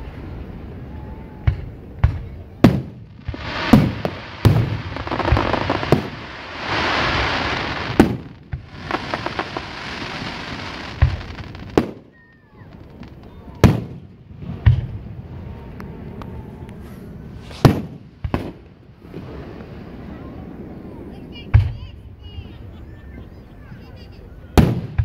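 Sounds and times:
fireworks bangs: 0:01.5 - 0:15.2, 0:17.3 - 0:20.1
fireworks hissing: 0:02.6 - 0:14.0, 0:17.3 - 0:20.0.

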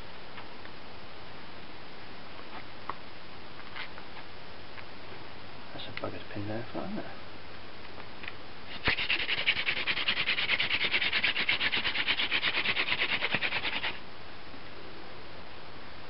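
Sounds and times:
hand drill rasping wood on wood: 0:08.7 - 0:14.0.

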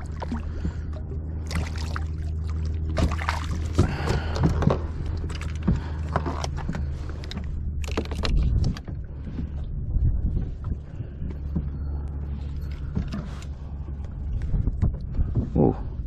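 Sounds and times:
steady low rumble: 0:00.0 - 0:16.0
water sloshing against kayak hull: 0:00.0 - 0:16.0
knocks and clicks of fishing gear: 0:02.9 - 0:09.7, 0:12.6 - 0:15.6.

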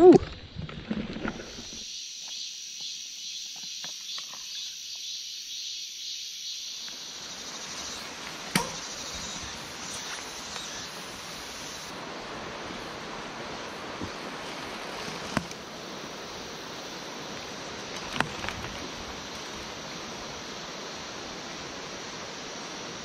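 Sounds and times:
high insect drone: 0:01.4 - 0:23.0
stream rushing: 0:07.2 - 0:23.0.

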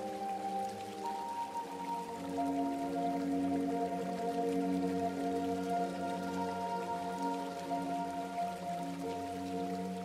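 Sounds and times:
ambient synth pad music: 0:00.0 - 0:10.0.

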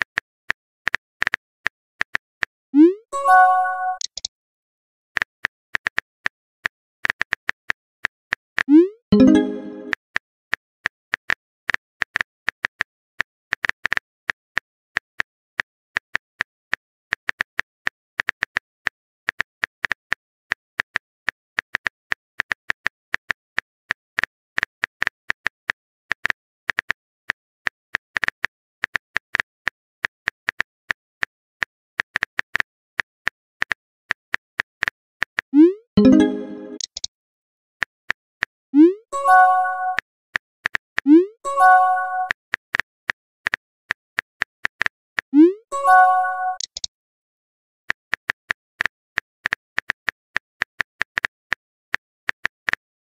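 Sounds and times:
phone keyboard typing clicks: 0:36.0 - 0:37.1, 0:45.9 - 0:46.9.

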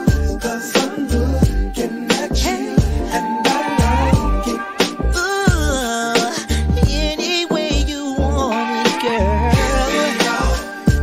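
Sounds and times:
r and b song over hip-hop beat: 0:00.0 - 0:11.0
deep bass hits: 0:03.8 - 0:05.9, 0:06.6 - 0:07.1.

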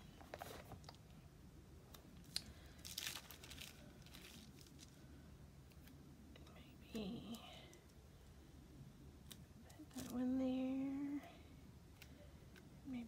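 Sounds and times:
sticker sheets rustling: 0:09.2 - 0:10.2.

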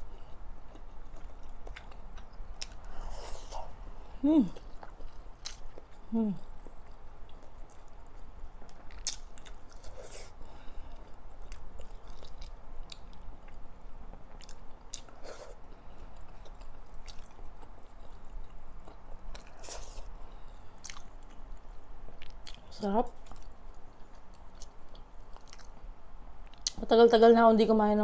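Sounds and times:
person chewing with mouth smacks: 0:00.2 - 0:03.8, 0:04.5 - 0:20.1, 0:20.8 - 0:25.8.

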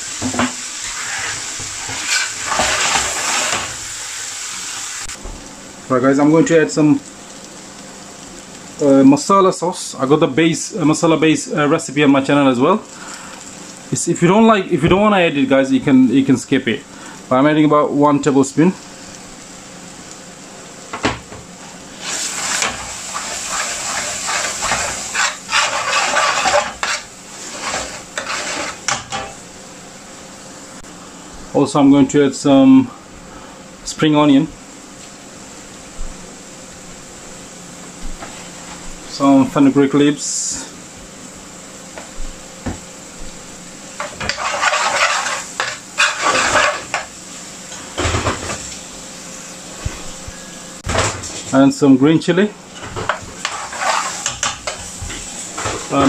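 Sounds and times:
sauce frying: 0:00.0 - 0:31.0, 0:39.8 - 0:50.2, 0:52.4 - 0:56.0
metal spoon scraping frying pan: 0:00.8 - 0:03.7, 0:22.0 - 0:29.4, 0:44.0 - 0:47.1, 0:53.4 - 0:54.9.

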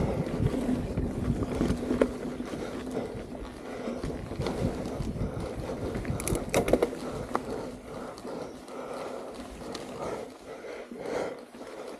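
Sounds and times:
bike rattling over bumps: 0:00.0 - 0:11.9
bike tyres rolling on dirt: 0:00.0 - 0:11.9.

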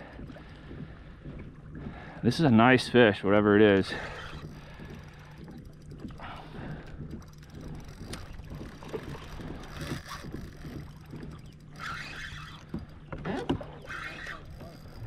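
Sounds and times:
steady low hum: 0:00.0 - 0:15.0
water against kayak hull: 0:00.0 - 0:15.0
fishing reel clicking: 0:03.8 - 0:13.0, 0:13.8 - 0:15.0.

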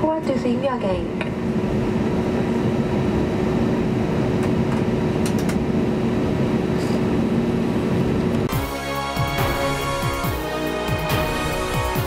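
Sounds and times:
air conditioning running: 0:00.0 - 0:08.5
jet engines idling: 0:00.0 - 0:12.0.

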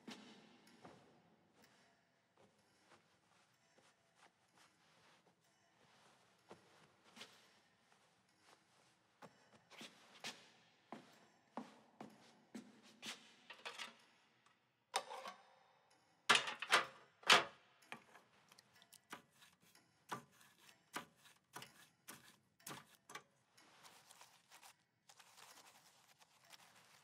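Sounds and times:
jars and lids clinking on metal tray: 0:13.5 - 0:13.9, 0:15.0 - 0:15.4, 0:16.3 - 0:18.2.

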